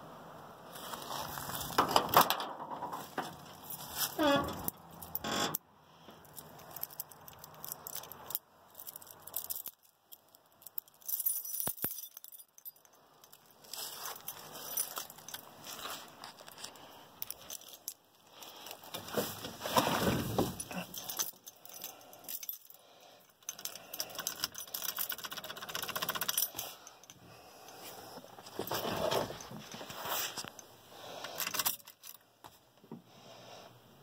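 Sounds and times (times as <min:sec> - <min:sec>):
keys jangling: 0:06.2 - 0:18.9, 0:20.2 - 0:27.8, 0:30.5 - 0:32.2.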